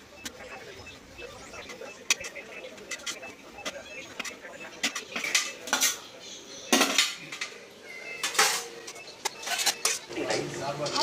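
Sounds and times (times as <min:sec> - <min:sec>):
metal kitchenware clinking: 0:08.2 - 0:11.0.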